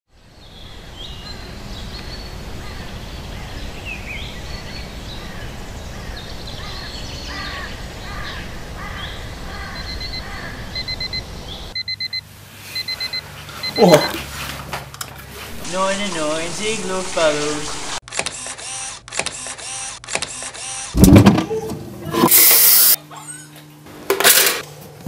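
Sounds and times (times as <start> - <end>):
outdoor background noise: 0.1 - 25.0
birds chirping and calling: 0.3 - 11.8
alarm clock beeping: 9.8 - 14.3.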